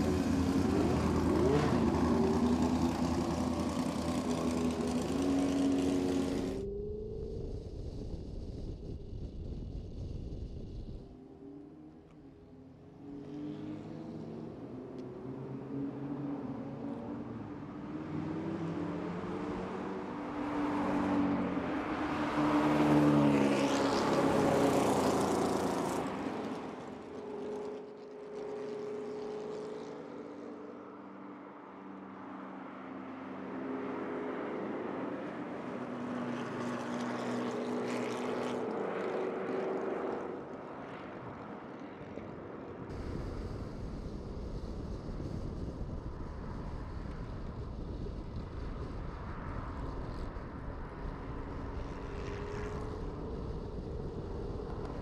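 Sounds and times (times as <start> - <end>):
race cars passing at speed: 0.0 - 7.5, 11.0 - 43.3
wind noise: 6.2 - 11.2, 42.8 - 55.0.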